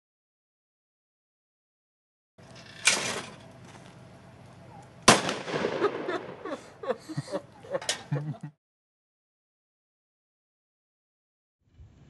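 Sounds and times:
shotgun blast: 0:05.0 - 0:06.5.

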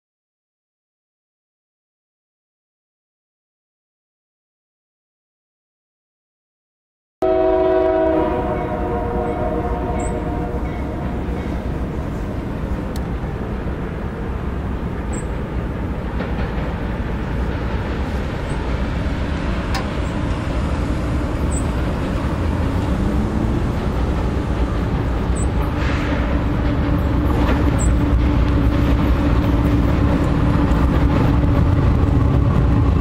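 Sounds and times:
train air horn: 0:07.2 - 0:11.4
train rumbling: 0:07.2 - 0:33.0.

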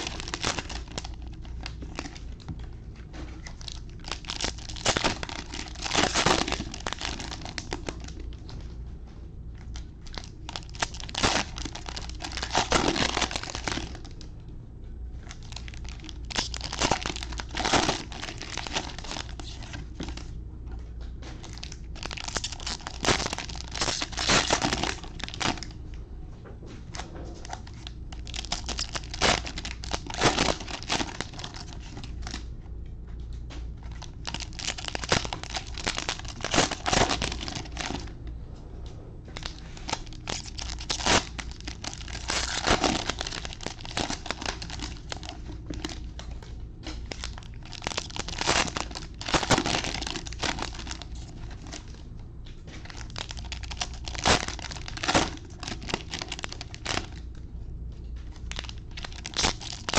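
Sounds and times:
cellophane packs tearing and crinkling: 0:00.0 - 0:02.4, 0:03.4 - 0:08.4, 0:09.7 - 0:14.2, 0:15.2 - 0:20.3, 0:21.4 - 0:25.8, 0:26.9 - 0:32.4, 0:33.8 - 0:38.1, 0:39.4 - 0:52.0, 0:52.8 - 0:57.2, 0:58.3 - 0:59.9.

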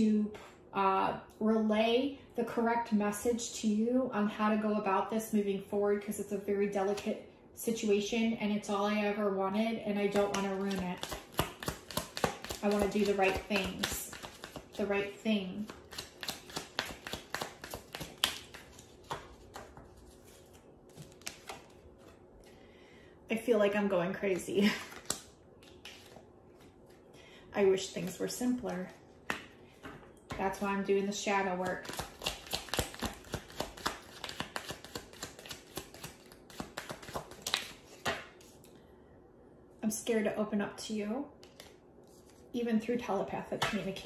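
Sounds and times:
cards being shuffled: 0:10.1 - 0:22.2, 0:24.3 - 0:27.0, 0:31.6 - 0:38.7.

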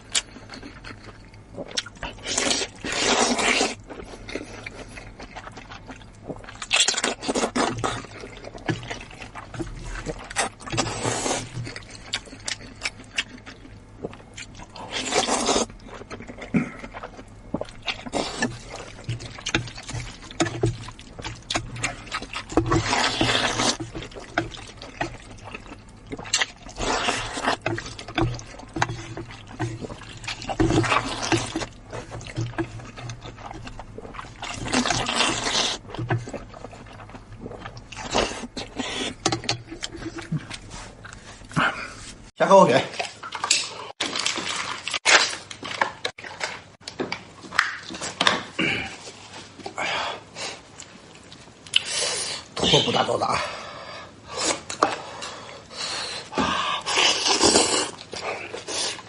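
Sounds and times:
chewing: 0:00.0 - 0:42.3, 0:42.9 - 0:49.8, 0:50.4 - 0:52.8, 0:54.3 - 0:59.0
noodles slurped: 0:01.6 - 0:13.6, 0:14.4 - 0:42.2, 0:54.2 - 0:59.0.

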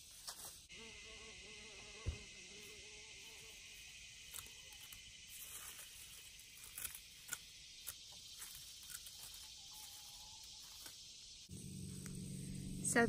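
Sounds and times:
high background hiss: 0:00.0 - 0:13.0
garden shears snipping: 0:04.2 - 0:11.0.

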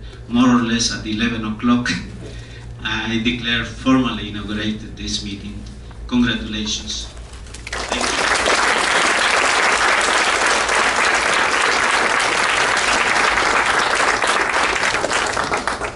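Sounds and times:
audience applauding: 0:07.6 - 0:15.9.

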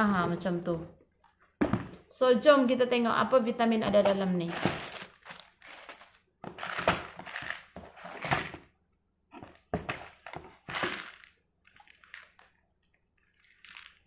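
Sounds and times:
plastic bottle handling: 0:03.8 - 0:12.6
cardboard box rustling: 0:04.0 - 0:08.6.

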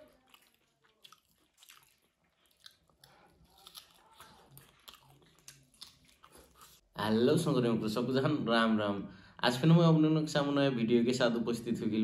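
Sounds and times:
man chewing food: 0:00.0 - 0:06.9.

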